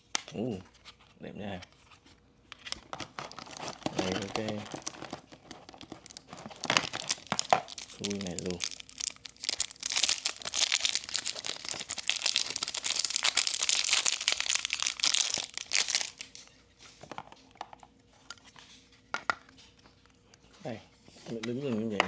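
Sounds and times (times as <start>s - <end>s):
plastic wrapper crinkling: 2.6s - 16.6s.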